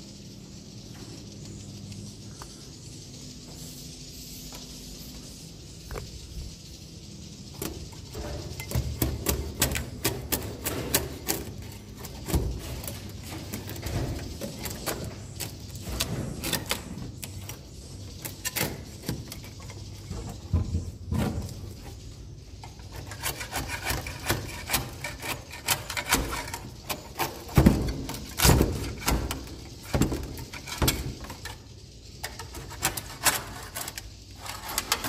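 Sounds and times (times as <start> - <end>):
steady high hiss: 0.0 - 35.0
metal scraper scraping wood: 8.1 - 17.5, 22.6 - 31.5.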